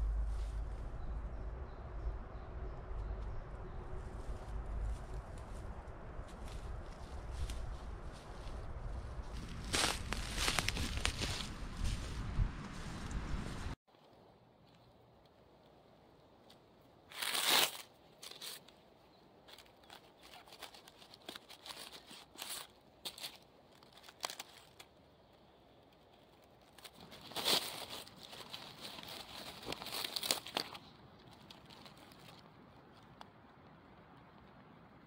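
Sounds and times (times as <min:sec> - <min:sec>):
leaf litter rustling and crackling: 0:04.2 - 0:13.7, 0:17.1 - 0:18.6, 0:19.5 - 0:24.9, 0:26.3 - 0:32.4.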